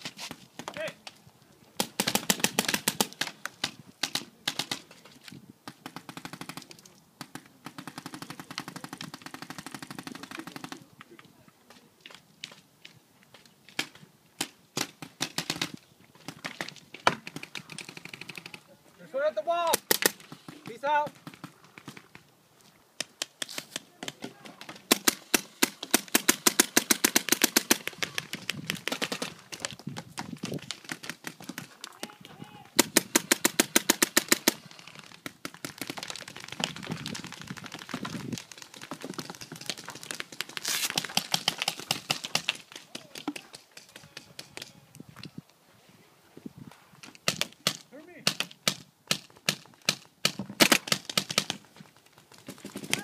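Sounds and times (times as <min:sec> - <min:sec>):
paintball markers firing: 0:01.8 - 0:04.8, 0:13.8 - 0:18.6, 0:19.7 - 0:22.3, 0:23.0 - 0:32.1, 0:32.8 - 0:44.8, 0:47.1 - 0:51.7
paintball marker firing: 0:19.7 - 0:22.2, 0:23.0 - 0:29.7, 0:32.8 - 0:36.8, 0:47.2 - 0:51.6.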